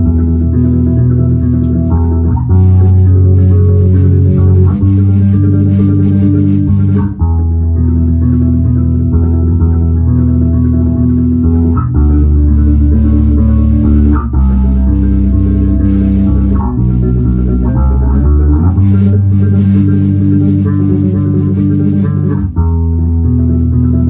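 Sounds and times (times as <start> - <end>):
electric bass tremolo picking: 0.0 - 24.0.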